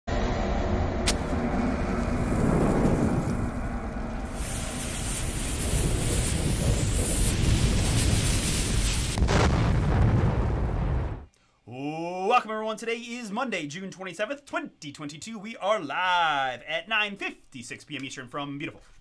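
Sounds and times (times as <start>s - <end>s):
low rumble: 0.1s - 11.3s
hiss of flames: 1.0s - 11.3s
sizzling fuse: 1.1s - 9.5s.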